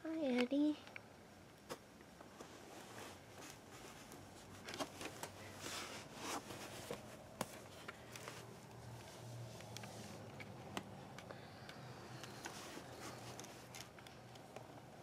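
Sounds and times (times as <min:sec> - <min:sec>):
handling rustling on camera: 0:01.7 - 0:10.6.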